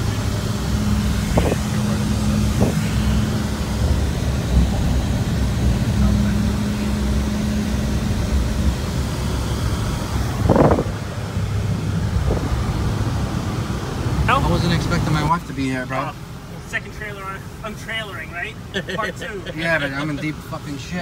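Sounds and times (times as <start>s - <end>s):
car engine and road rumble: 0.0s - 21.0s
constant hum: 0.0s - 21.0s.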